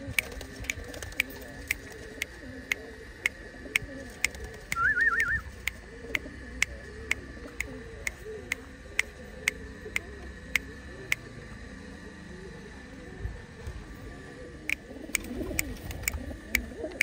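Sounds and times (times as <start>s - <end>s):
sharp ticking: 0.0s - 11.6s, 14.6s - 17.0s
pigeons cooing: 0.0s - 17.0s
short warbling whistle: 4.7s - 5.5s.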